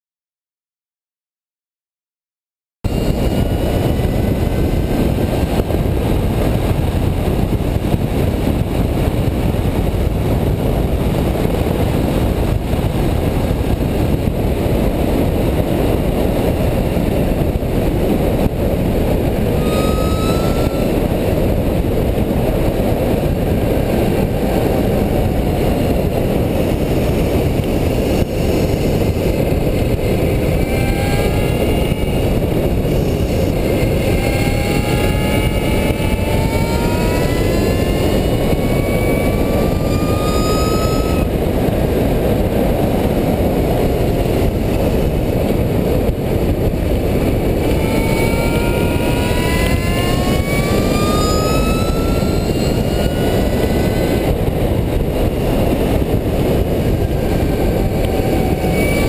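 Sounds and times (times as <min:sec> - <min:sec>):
wind rumbling over microphone: 0:02.8 - 0:59.0
faint rising whines: 0:02.9 - 0:59.0.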